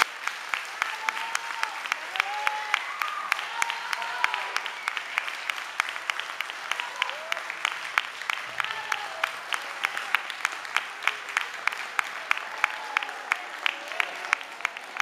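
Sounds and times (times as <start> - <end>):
loose applause: 0.0 - 15.0
rhythmic clapping: 0.0 - 15.0.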